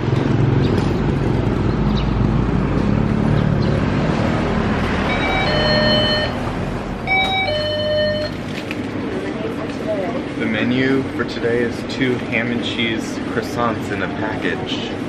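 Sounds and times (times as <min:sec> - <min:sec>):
street traffic rumble: 0:00.0 - 0:15.0
two-note electronic door chime: 0:05.1 - 0:06.5, 0:07.1 - 0:08.4.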